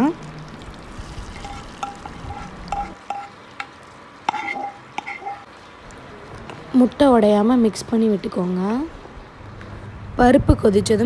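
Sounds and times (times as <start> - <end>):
hot oil sizzling in a pot: 0.0 - 7.4
spoon clinking against metal pot: 1.4 - 3.7.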